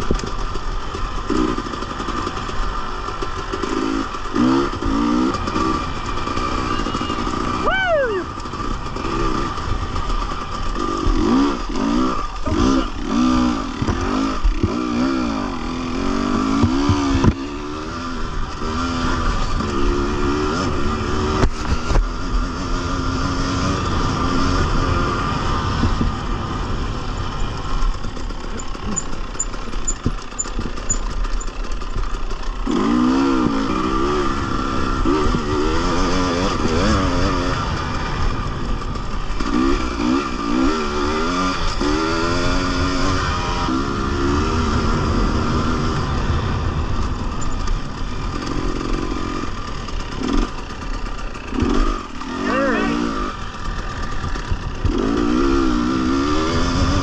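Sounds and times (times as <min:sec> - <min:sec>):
dirt bike engine revving: 0:00.0 - 0:57.0
knocks and rattles: 0:27.9 - 0:32.1.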